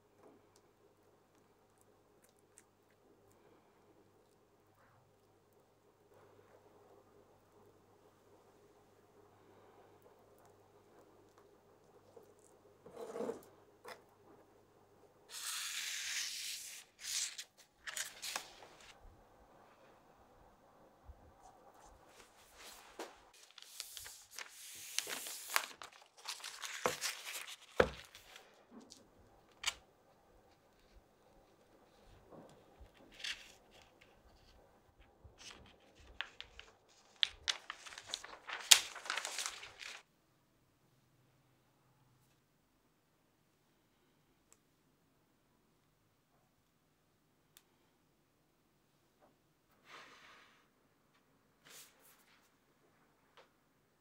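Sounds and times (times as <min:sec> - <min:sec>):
plastic film crinkling: 0:23.4 - 0:29.8, 0:35.4 - 0:40.0.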